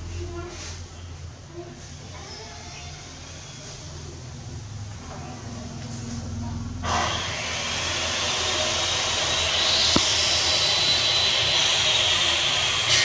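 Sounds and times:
thin high whine: 6.9 - 13.0.

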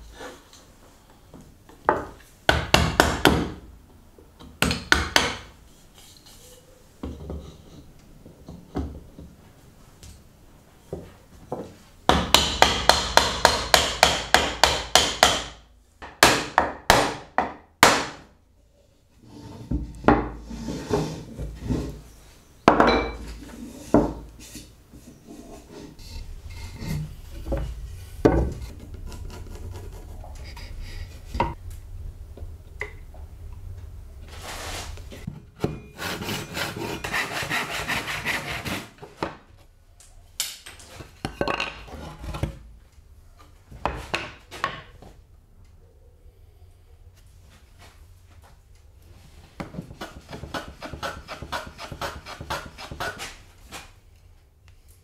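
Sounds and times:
sharp wooden knocks: 12.1 - 18.2
boards knocked and slid on bench: 19.2 - 22.0, 22.7 - 25.9, 26.8 - 28.9
hand saw cutting wood: 36.0 - 39.0, 50.0 - 53.4.

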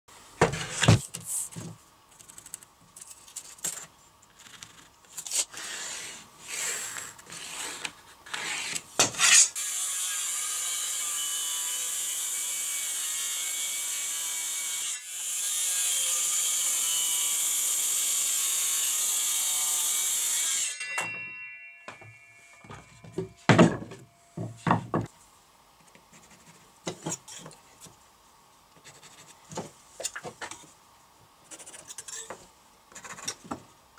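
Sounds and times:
circular saw cutting board: 5.5 - 25.1
board knocking on wooden workbench: 22.7 - 25.1.

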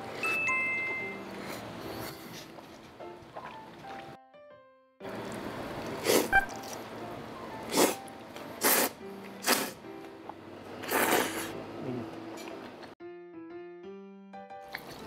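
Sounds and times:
slurping noodles: 5.8 - 6.4, 7.7 - 8.0, 8.6 - 9.8, 10.8 - 11.6.

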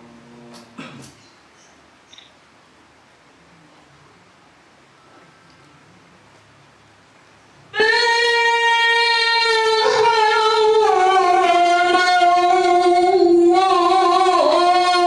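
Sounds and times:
person chanting recitation: 7.7 - 15.0.

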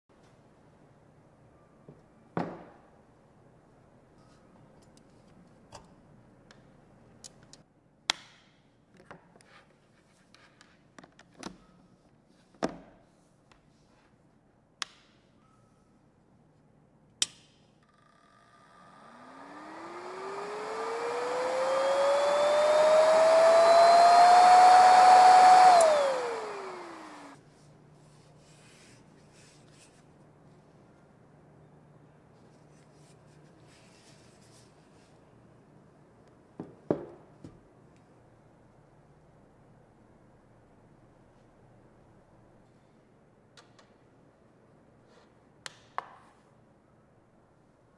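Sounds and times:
electric fan whining: 18.4 - 27.4.

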